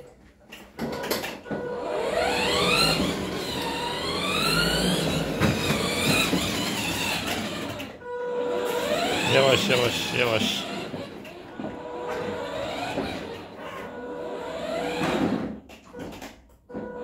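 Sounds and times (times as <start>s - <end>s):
toy car motors whining: 1.6s - 15.5s.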